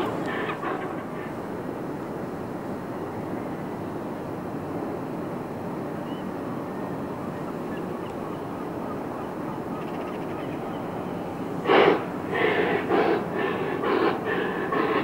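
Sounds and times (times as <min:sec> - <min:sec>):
steady low rumble: 0:00.0 - 0:02.7.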